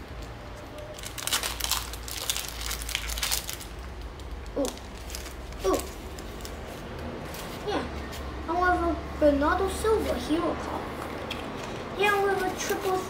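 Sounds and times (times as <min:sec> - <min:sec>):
plastic wrapper crinkling and tearing: 0:00.2 - 0:07.6.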